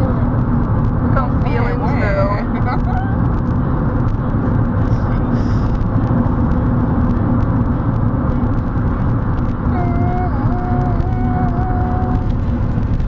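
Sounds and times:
car cabin road and engine rumble: 0:00.0 - 0:13.0.

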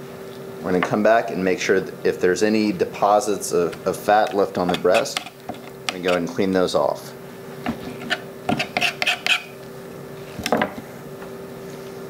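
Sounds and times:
knife scraping cutting board: 0:03.6 - 0:06.4, 0:07.6 - 0:09.6.

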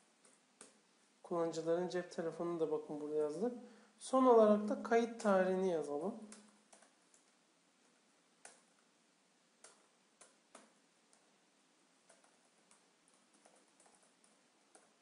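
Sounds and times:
computer keyboard keystrokes: 0:06.3 - 0:07.4, 0:09.6 - 0:11.3, 0:12.0 - 0:15.0.

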